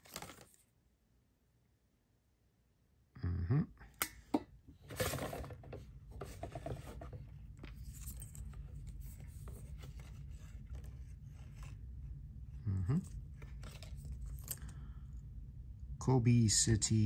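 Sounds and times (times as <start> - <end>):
rustling and rubbing: 4.8 - 12.2.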